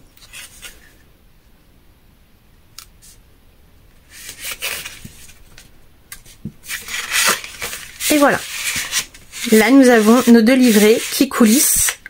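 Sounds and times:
palm rubbing across card: 6.6 - 12.0.

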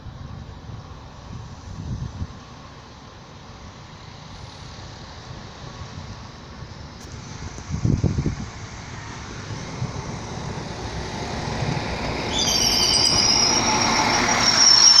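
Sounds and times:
diesel train running: 0.0 - 15.0
high-pitched brake squeal: 11.2 - 15.0.

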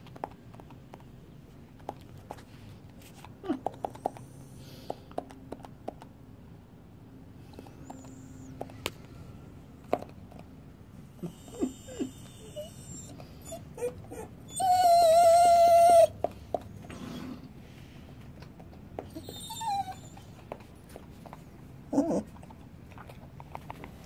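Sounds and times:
squeaky whimpers: 11.2 - 16.2, 19.1 - 20.3.

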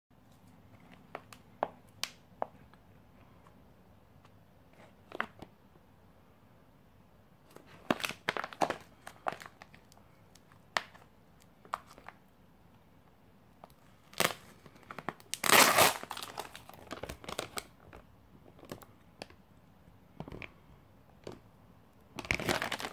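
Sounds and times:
plastic pack crinkling: 7.5 - 12.2, 13.6 - 19.3, 22.2 - 22.9.

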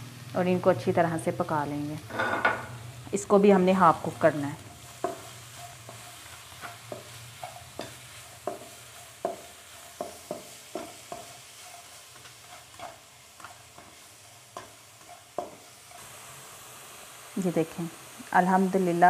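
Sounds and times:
light sizzle: 0.0 - 19.0
spatula scraping frying pan: 3.8 - 16.3.

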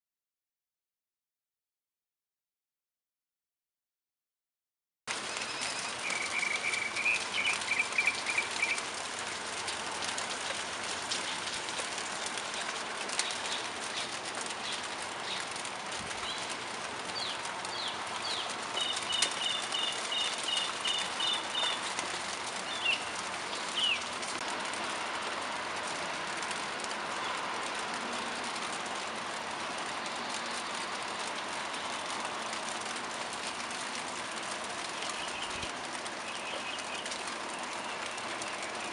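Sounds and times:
rain falling on leaves: 5.1 - 38.9
small birds chirping: 5.2 - 8.9, 12.4 - 24.2, 34.8 - 38.9.

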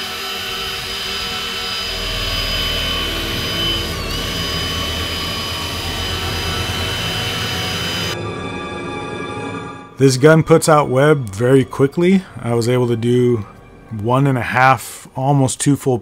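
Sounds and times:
drill motor whining: 0.0 - 8.2.

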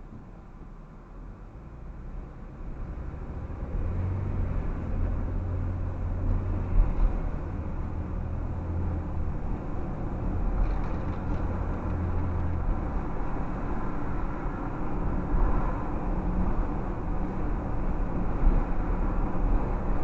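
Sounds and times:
car tyre and engine hum: 0.0 - 20.0.

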